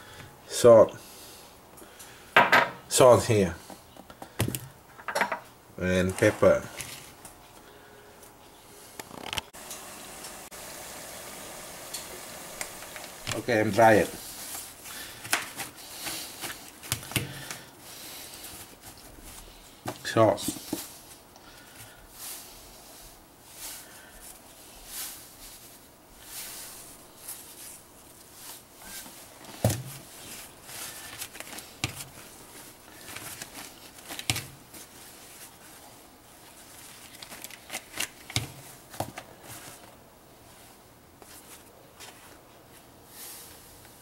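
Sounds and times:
paper towels rustling: 13.2 - 43.8.

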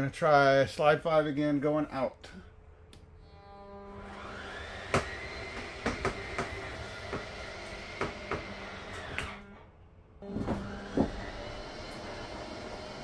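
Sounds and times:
motor drone with whine: 3.2 - 13.0
knocks and creaks: 4.9 - 12.2.

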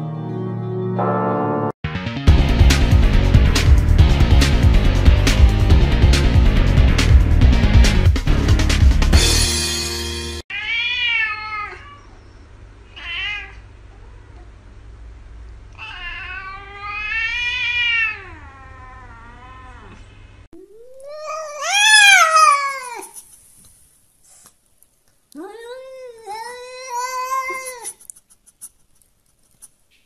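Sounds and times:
cats meowing: 10.5 - 12.2, 12.8 - 14.5, 15.7 - 23.3, 25.4 - 28.0.

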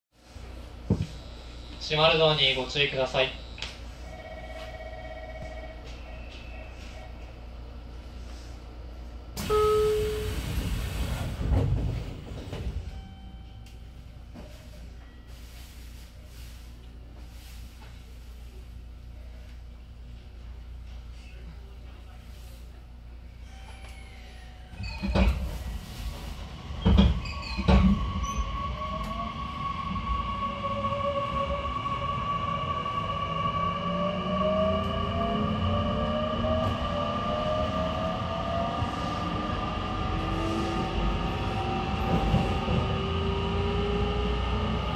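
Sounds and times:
short tone: 9.4 - 10.6, 12.8 - 14.0
air hiss of train doors: 9.4 - 11.6.

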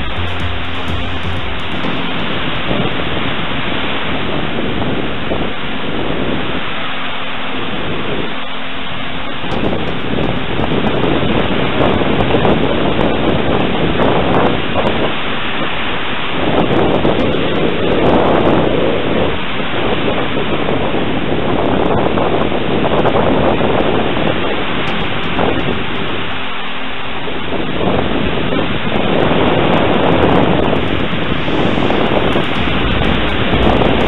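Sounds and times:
wind buffeting microphone: 27.1 - 34.0.

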